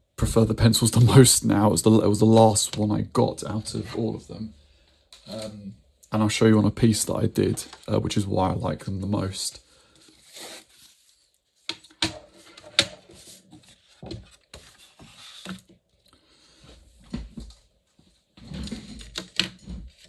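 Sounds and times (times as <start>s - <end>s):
paper rustling and sliding: 9.9s - 11.5s, 12.2s - 15.7s.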